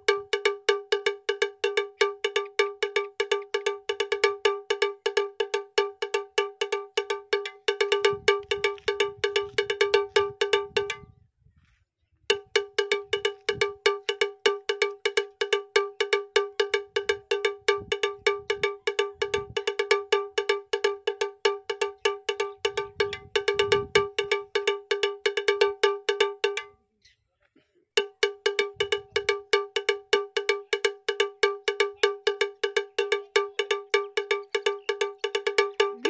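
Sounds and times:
faint low thumps: 0:07.6 - 0:15.6.

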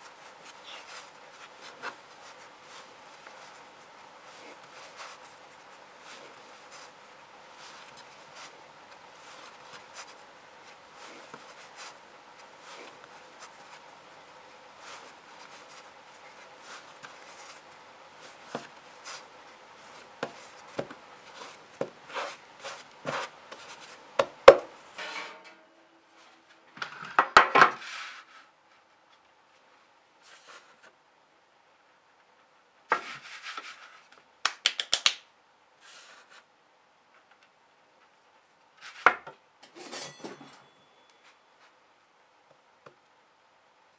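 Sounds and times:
dough rubbing and pressing: 0:00.0 - 0:24.8, 0:31.9 - 0:34.2
dough knocking on wooden board: 0:24.2 - 0:24.7.

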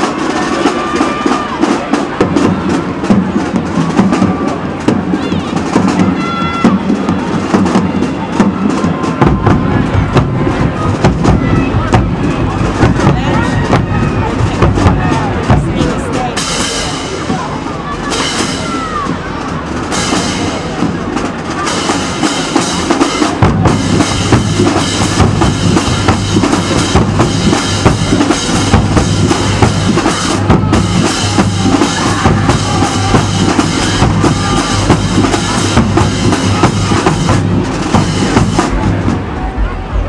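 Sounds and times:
marching drumline playing: 0:00.0 - 0:40.0
deep bass drum tone: 0:09.2 - 0:16.3, 0:23.4 - 0:40.0.

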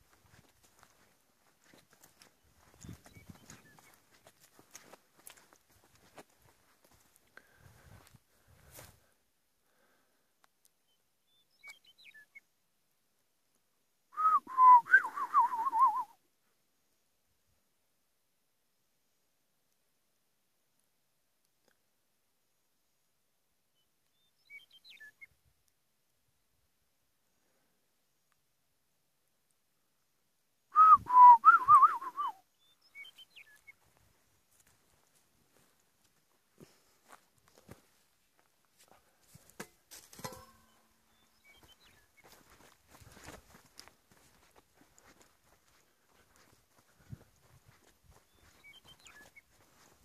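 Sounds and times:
faint high chirps: 0:02.6 - 0:04.4, 0:40.2 - 0:42.4, 0:48.1 - 0:49.6
person whistling: 0:14.2 - 0:16.2, 0:30.7 - 0:32.4.

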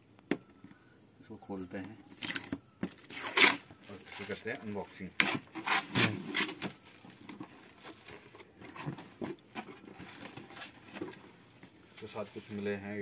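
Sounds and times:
cardboard tearing and scraping: 0:03.0 - 0:11.1
cardboard rustling: 0:03.0 - 0:13.0.

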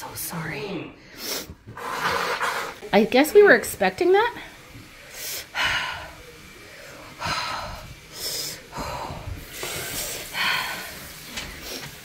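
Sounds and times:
person hissing breaths: 0:01.0 - 0:02.8, 0:05.0 - 0:12.0.

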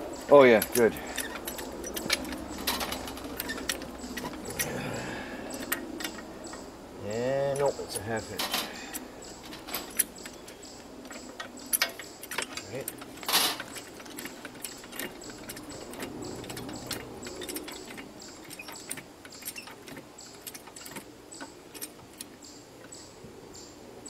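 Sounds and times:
metallic clicks and clinks: 0:00.0 - 0:04.8, 0:05.5 - 0:06.6, 0:07.5 - 0:23.0
socket wrench ratcheting: 0:00.6 - 0:04.7, 0:08.9 - 0:21.1.

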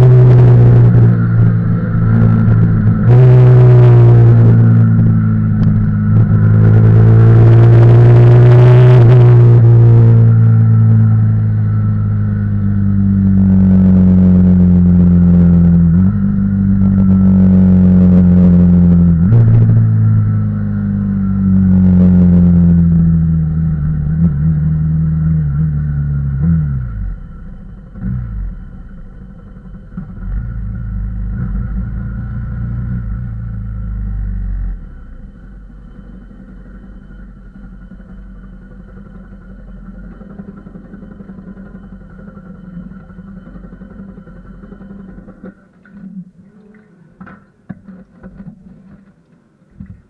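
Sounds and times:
motorcycle engine: 0:00.0 - 0:47.4
throttle blips: 0:25.4 - 0:47.0.

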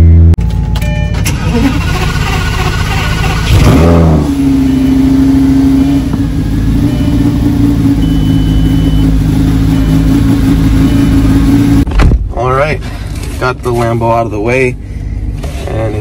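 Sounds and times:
car engine fast idle: 0:01.2 - 0:03.4.

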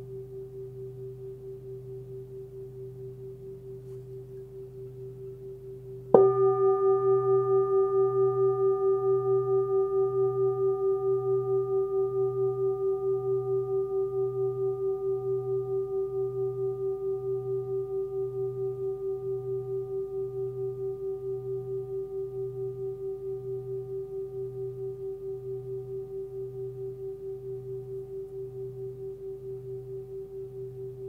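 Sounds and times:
singing bowl ringing: 0:01.6 - 0:31.0.

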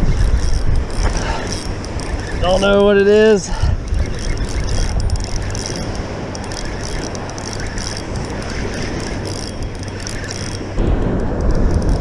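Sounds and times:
fishing reel whirring: 0:00.0 - 0:12.0
wind rumble on microphone: 0:00.0 - 0:12.0
waves washing: 0:04.8 - 0:12.0.

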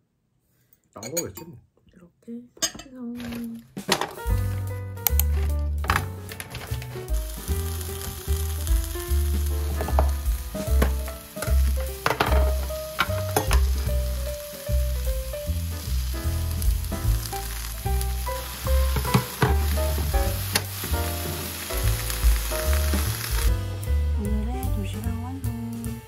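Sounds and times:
background music: 0:03.2 - 0:26.0
food sizzling in a pan: 0:06.4 - 0:24.2.

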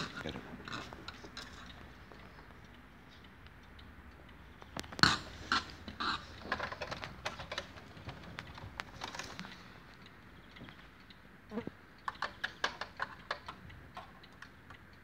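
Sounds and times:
model car clicks and taps: 0:12.0 - 0:14.8.

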